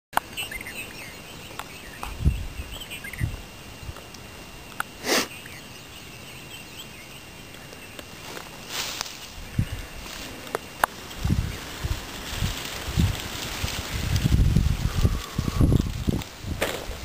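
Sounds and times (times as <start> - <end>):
faint bird chirps: 0.3 - 3.5, 5.2 - 8.0.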